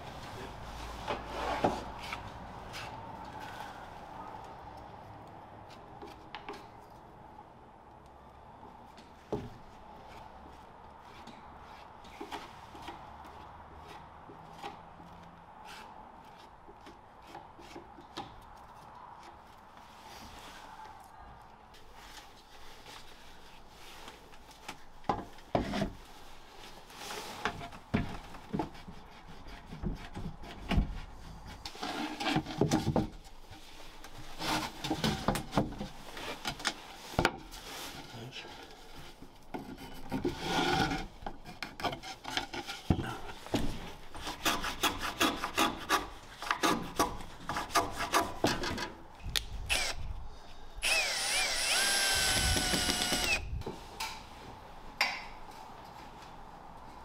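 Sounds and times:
power drill driving screw into wood: 49.7s - 50.0s, 50.8s - 53.4s.

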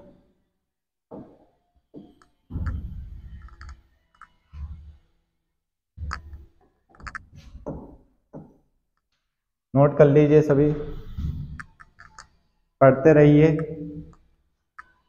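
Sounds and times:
footsteps on floor: 1.1s - 3.0s, 7.0s - 8.6s.

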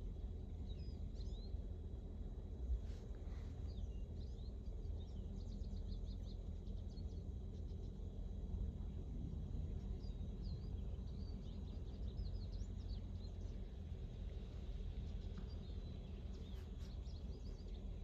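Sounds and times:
wind rumble on microphone: 0.0s - 18.0s
small birds chirping: 3.3s - 8.3s, 9.7s - 18.0s.

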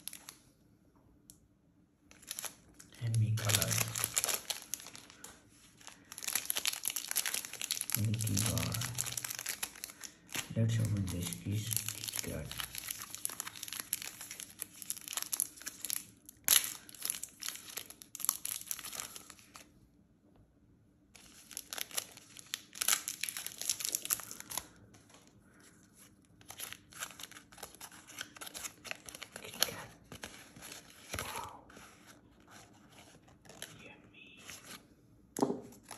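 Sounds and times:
plastic wrapper crinkling: 0.0s - 0.4s, 2.1s - 19.7s, 21.2s - 34.8s
wrapper tearing: 0.0s - 0.4s, 2.1s - 19.7s, 21.2s - 25.2s, 26.4s - 31.2s.

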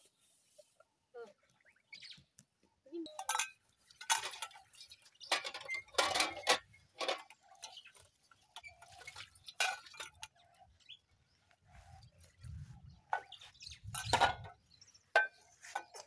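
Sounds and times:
dishes clinking and knocking: 3.1s - 4.6s, 5.2s - 7.8s, 13.9s - 16.0s.

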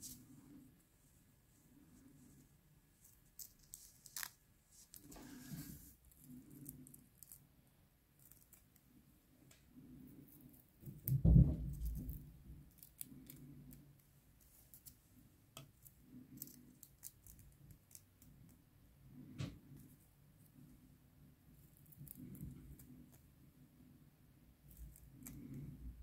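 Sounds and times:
crisp crackles of peeling skin: 3.0s - 7.5s, 15.7s - 18.4s
dull low thump: 11.1s - 11.8s.

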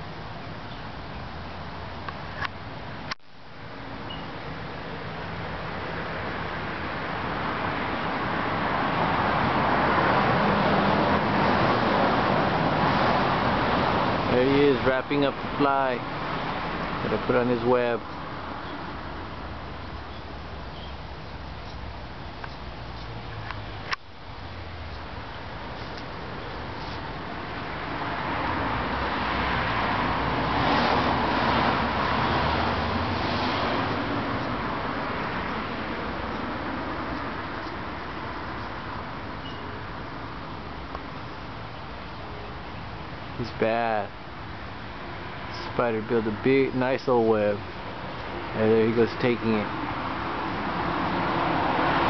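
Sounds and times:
road traffic noise: 0.0s - 52.0s
vehicle passing by: 5.2s - 23.8s, 25.5s - 39.4s, 44.7s - 52.0s.

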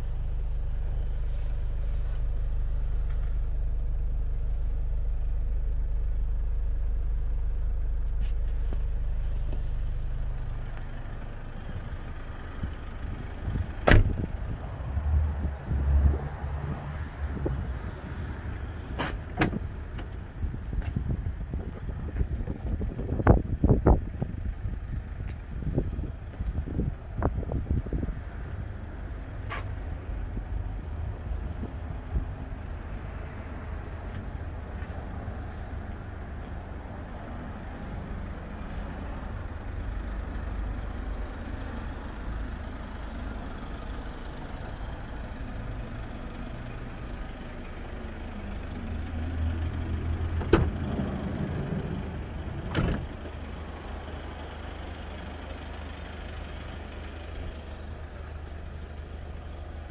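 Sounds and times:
sliding door clunk: 52.6s - 53.1s.

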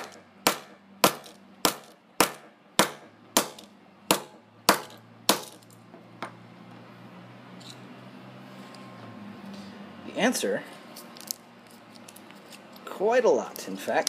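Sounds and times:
hammer striking phone on concrete: 0.0s - 6.4s.

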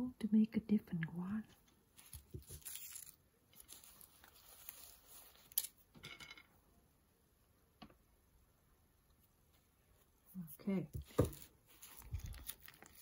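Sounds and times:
soft rustling: 1.4s - 5.6s, 9.2s - 13.0s.

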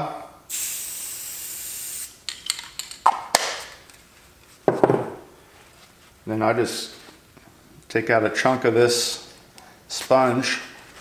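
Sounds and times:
spray paint can hissing: 0.5s - 2.2s.

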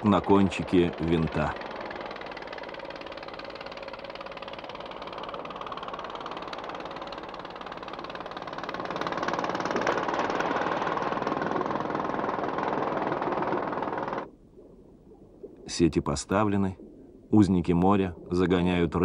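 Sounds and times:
boat engine running: 0.0s - 14.4s.

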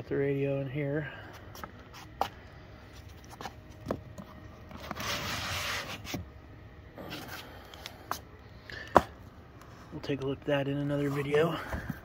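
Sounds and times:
box rubbing against foam: 4.8s - 6.3s.

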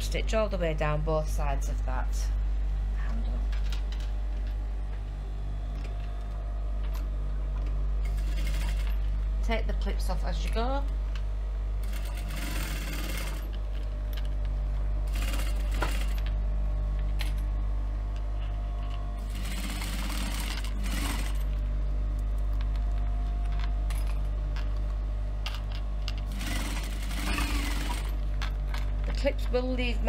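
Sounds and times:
sewing machine motor hum: 5.7s - 10.9s, 11.8s - 16.4s, 18.8s - 24.9s, 26.0s - 29.0s
sewing machine stitching: 11.8s - 13.4s, 19.2s - 21.4s, 26.3s - 28.2s.

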